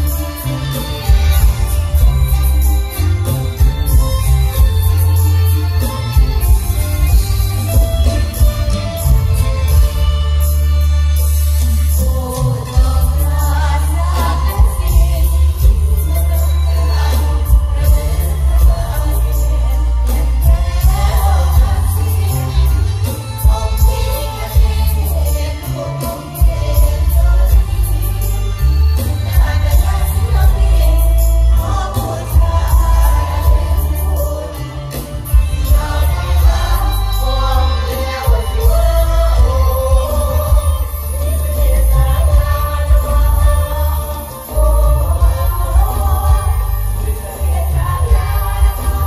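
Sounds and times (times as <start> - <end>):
heavy bass line: 0.0 - 49.0
live band music over sound system: 0.0 - 49.0
steady drum beat: 0.0 - 49.0
person singing: 11.6 - 49.0.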